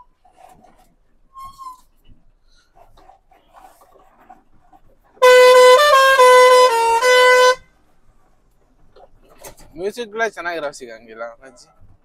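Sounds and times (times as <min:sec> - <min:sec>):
truck musical horn tune: 0:05.2 - 0:07.7.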